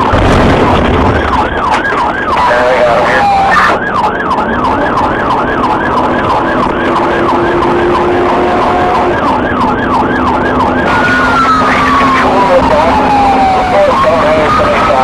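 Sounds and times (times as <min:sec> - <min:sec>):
police siren yelping: 0:00.0 - 0:15.0
car engine and road hum: 0:00.9 - 0:15.0.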